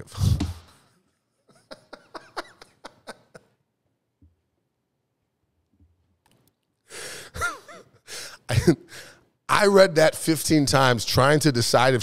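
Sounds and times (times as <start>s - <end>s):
man chuckling softly: 7.4s - 8.8s.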